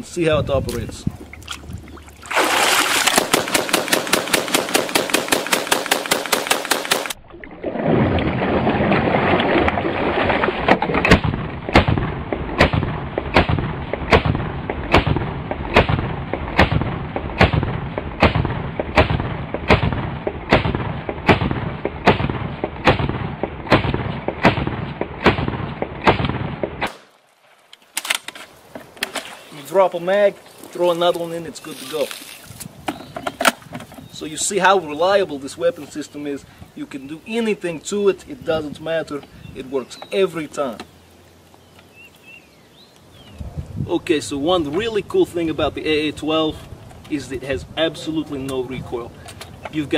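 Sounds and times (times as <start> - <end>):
automatic shotgun firing: 3.0 - 7.2, 11.0 - 27.1.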